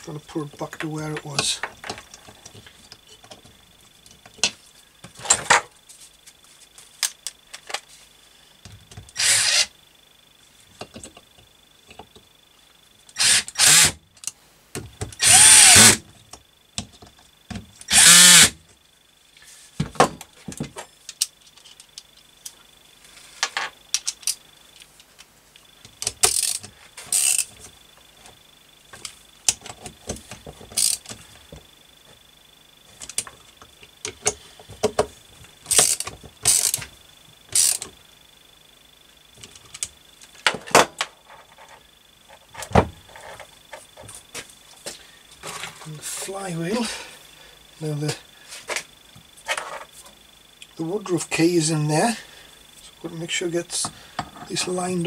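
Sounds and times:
cordless drill bursts: 9.2s - 9.7s, 13.2s - 14.0s, 15.2s - 16.0s, 17.9s - 18.6s.

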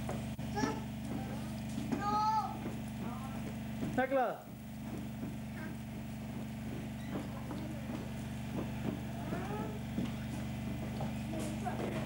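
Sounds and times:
low electrical hum: 0.0s - 12.0s
children's voices chattering: 0.4s - 3.6s, 5.3s - 12.0s.

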